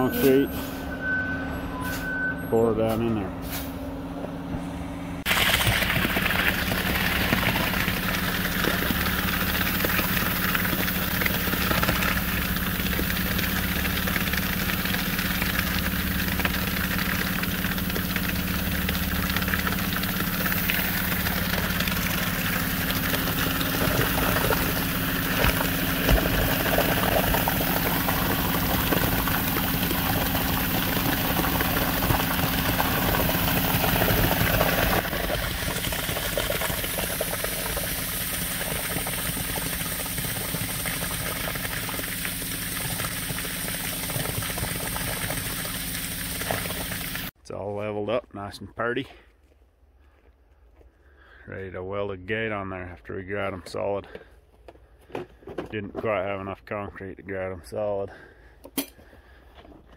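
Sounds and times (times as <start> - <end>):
truck engine running: 0.0 - 47.4
concrete pouring down chute: 5.2 - 47.3.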